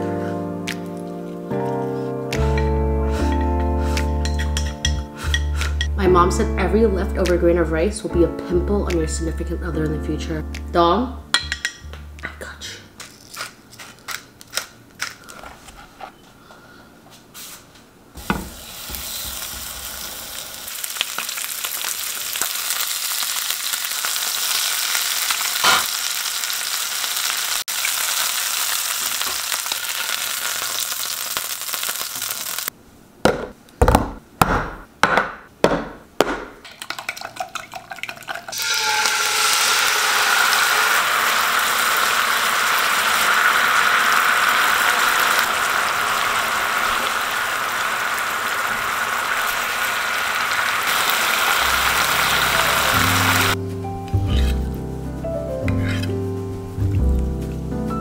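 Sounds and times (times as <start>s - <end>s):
chicken sizzling in a pan: 18.2s - 32.7s, 38.5s - 53.6s
sauce sizzling and bubbling: 18.5s - 32.7s, 36.8s - 57.4s.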